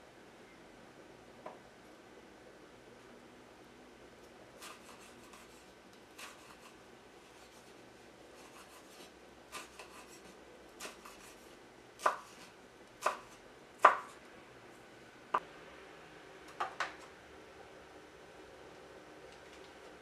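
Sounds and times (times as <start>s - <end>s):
knife slicing pepper on board: 4.6s - 5.6s, 6.2s - 6.8s, 8.4s - 11.4s, 12.0s - 14.2s.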